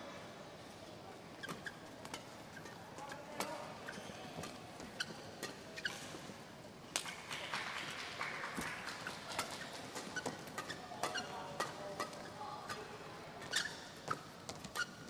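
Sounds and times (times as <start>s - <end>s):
shoes squeaking on court: 1.2s - 6.4s, 9.4s - 15.0s
racket striking shuttlecock: 9.4s - 12.8s.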